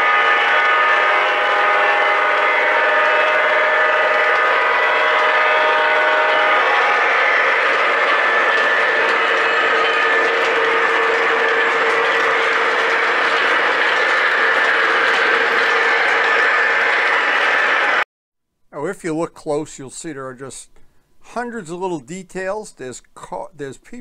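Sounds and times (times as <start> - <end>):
model train motor whine: 0.0 - 18.0
wheels rattling on rails: 0.0 - 18.0.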